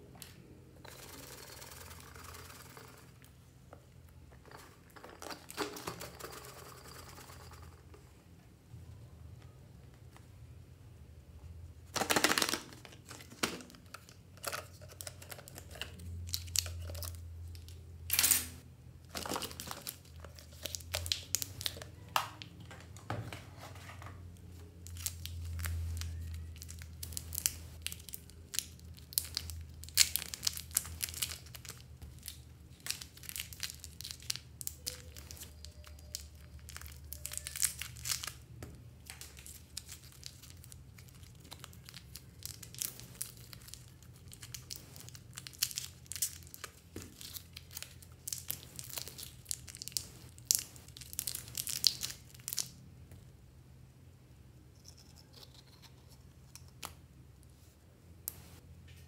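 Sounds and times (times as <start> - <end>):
plastic wrappers crinkling: 11.9 - 17.9, 19.1 - 22.6, 24.4 - 52.8.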